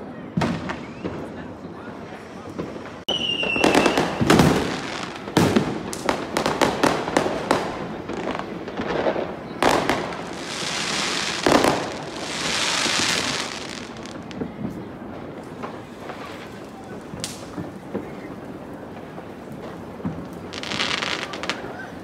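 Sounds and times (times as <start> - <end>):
crackling firework fizzes: 0.0 - 22.0
fireworks bangs and cracks: 0.0 - 22.0
firework falling whistle: 0.4 - 5.2.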